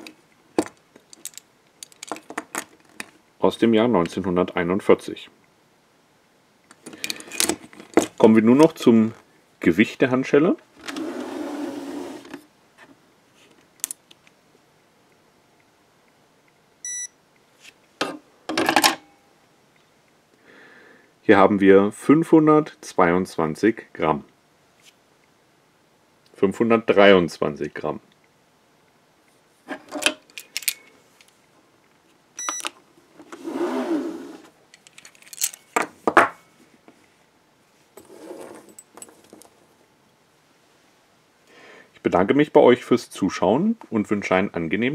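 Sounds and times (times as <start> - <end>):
metal handcuffs clinking: 1.1 - 2.3, 30.3 - 31.3, 34.7 - 35.8
scale beep: 16.8 - 17.2, 32.4 - 32.6
scraping rustle: 38.0 - 39.8.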